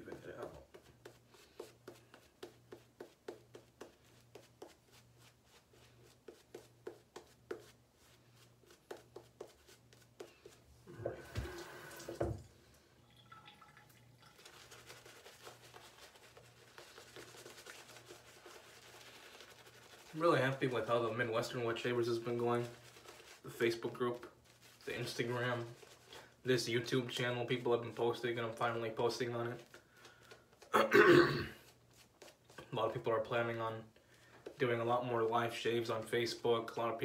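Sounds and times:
shaving brush swishing: 14.3s - 26.2s.

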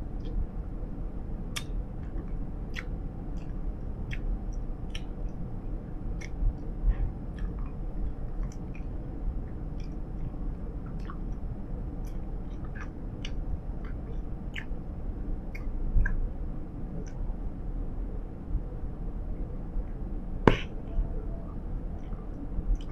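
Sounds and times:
steady low rumble: 0.0s - 22.9s
gum chewing clicks and smacks: 1.5s - 5.4s, 6.1s - 14.8s, 15.4s - 16.3s.

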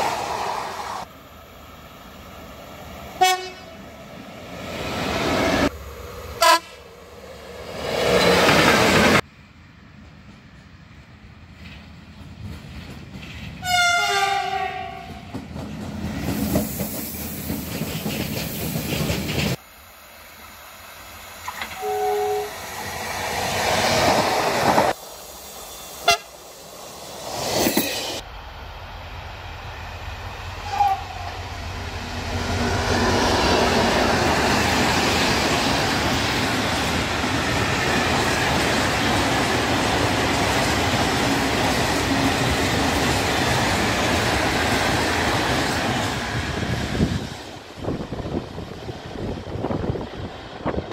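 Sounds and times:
approaching train noise: 0.0s - 50.9s
freight train rumble and clatter: 2.2s - 19.6s, 20.4s - 25.2s, 27.0s - 50.9s
two-tone train horn: 3.2s - 3.8s, 6.4s - 6.8s, 13.6s - 15.2s, 21.6s - 22.6s, 26.0s - 26.4s, 30.6s - 31.5s.

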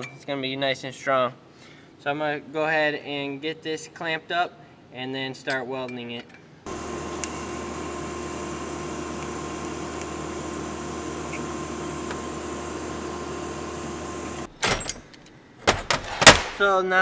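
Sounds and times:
welder humming and hissing: 6.7s - 14.5s.

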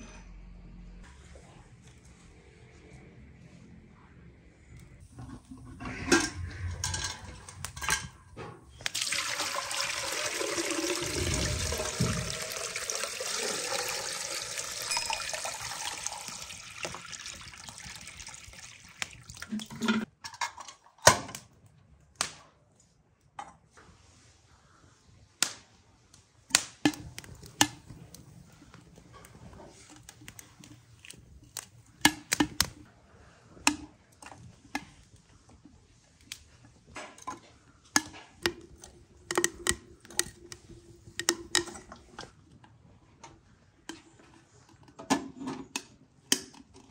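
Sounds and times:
water pouring into metal vessel: 8.8s - 20.1s.

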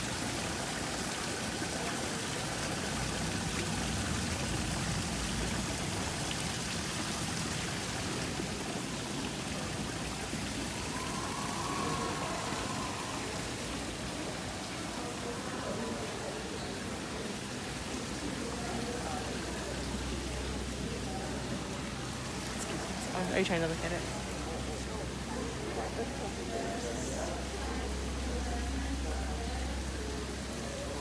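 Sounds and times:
water splashing into pond: 0.0s - 23.2s.

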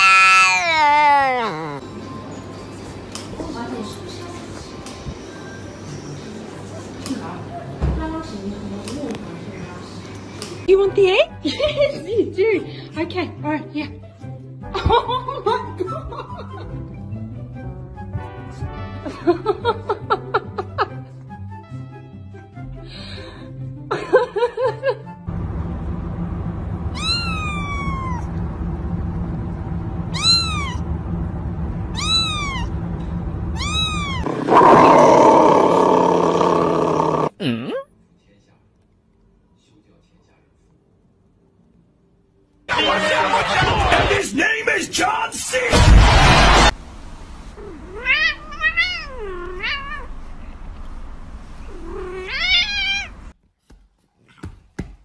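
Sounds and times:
kitten meowing: 0.0s - 1.8s, 26.9s - 28.3s, 30.1s - 30.8s, 31.9s - 32.7s, 33.6s - 34.4s, 47.7s - 50.1s, 51.8s - 53.1s
steady low hum: 25.3s - 37.3s.

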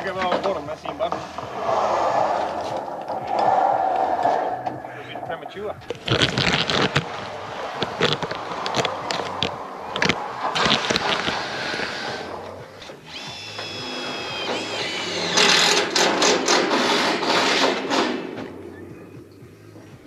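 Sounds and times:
power drill whining: 5.8s - 18.3s.

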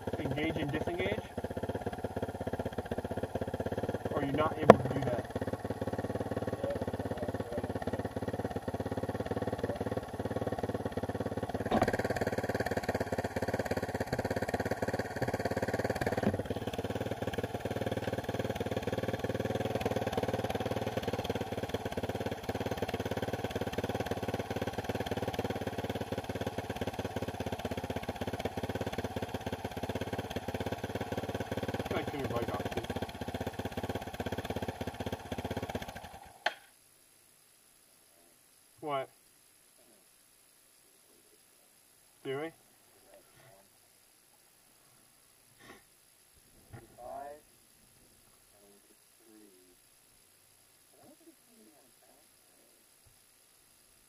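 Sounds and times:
motorcycle engine idling: 0.0s - 36.7s.

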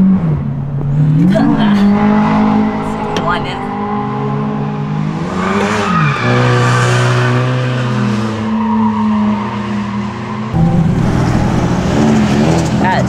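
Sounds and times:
car engines revving: 0.0s - 13.0s.

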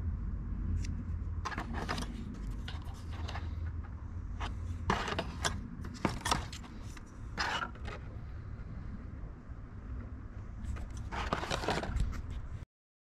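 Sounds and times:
steady low rumble: 0.0s - 12.6s.

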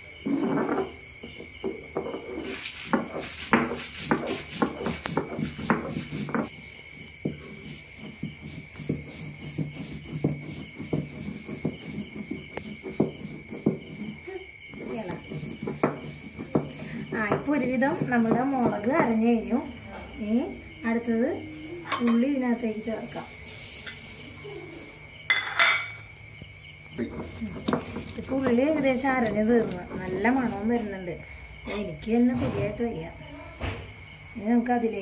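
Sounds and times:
stone roller grinding on stone: 0.2s - 19.6s, 27.0s - 30.9s.

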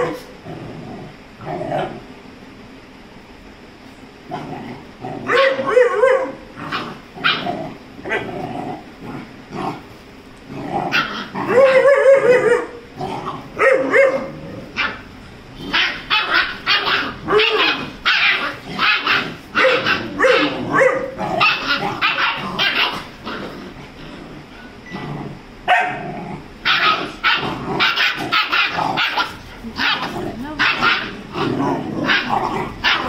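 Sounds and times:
dogs barking and yipping: 5.3s - 7.5s, 10.9s - 12.8s, 13.4s - 15.1s, 15.7s - 23.5s, 25.7s - 26.0s, 26.6s - 33.0s.

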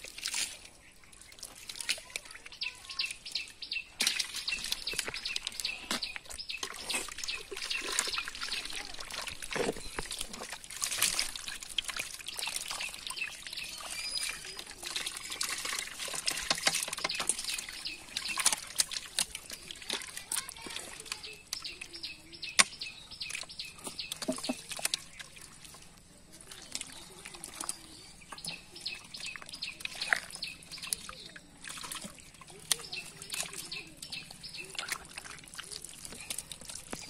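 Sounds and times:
wet slaps and splashes: 0.0s - 0.7s, 4.0s - 21.9s, 28.4s - 37.0s
hands squelching through mud: 0.0s - 37.0s.

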